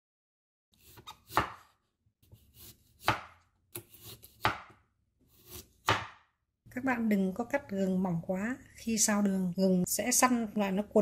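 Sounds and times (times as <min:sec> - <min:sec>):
knife slicing ginger: 0:00.8 - 0:06.3.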